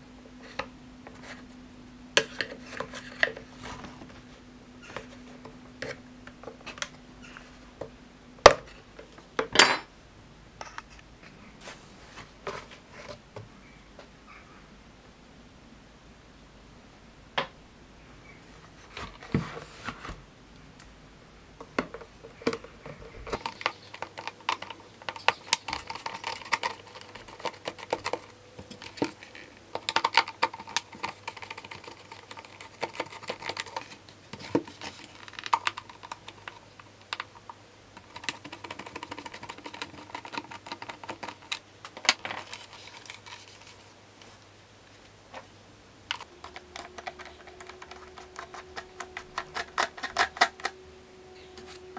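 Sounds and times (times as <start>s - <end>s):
plastic parts clicking and scraping: 2.2s - 4.2s, 21.6s - 43.9s, 46.1s - 50.8s.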